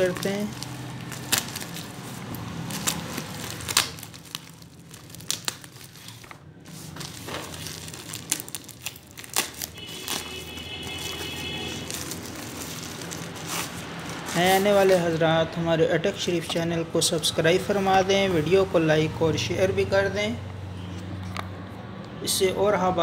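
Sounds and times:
scissors snipping plastic mailer: 0.0s - 15.0s
plastic crinkling and tearing: 0.0s - 15.2s.

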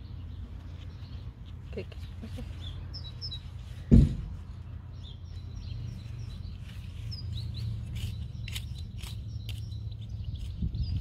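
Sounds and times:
birds chirping: 0.0s - 11.0s
hand trowel scraping soil: 6.5s - 11.0s.

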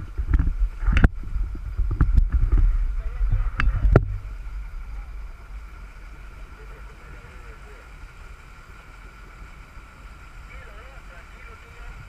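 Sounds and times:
boat engines running: 0.0s - 12.0s
wind buffeting microphone: 0.0s - 12.0s
sharp knocks: 3.3s - 4.3s.

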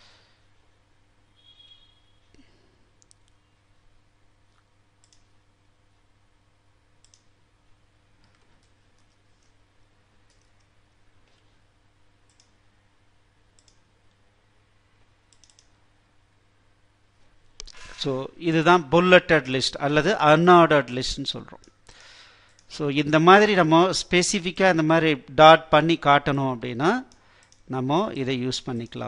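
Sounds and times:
low steady hum: 0.0s - 29.0s
keyboard and mouse clicks: 3.0s - 3.4s, 4.5s - 5.3s, 7.0s - 7.3s, 10.3s - 10.7s, 12.3s - 12.6s, 13.6s - 13.8s, 15.3s - 15.8s.

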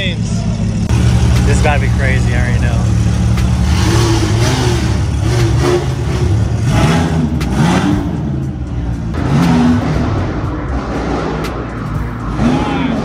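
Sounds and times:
sports car engines revving: 0.0s - 13.0s
steady engine hum: 0.0s - 13.0s.

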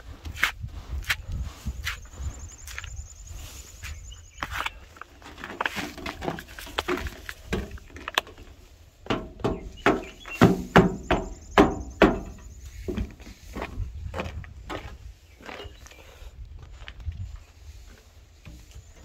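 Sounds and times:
boots knocking on metal floor: 9.0s - 15.0s.

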